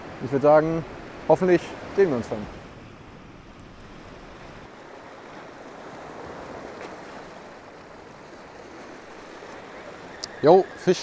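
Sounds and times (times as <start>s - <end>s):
small waves lapping on rocks: 3.4s - 11.0s.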